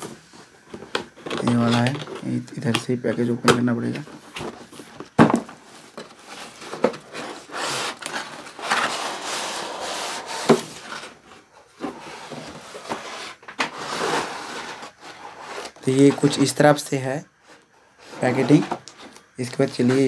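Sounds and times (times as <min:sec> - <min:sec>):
cardboard rubbing and scraping: 0:06.2 - 0:11.2, 0:11.8 - 0:16.6, 0:18.0 - 0:19.2.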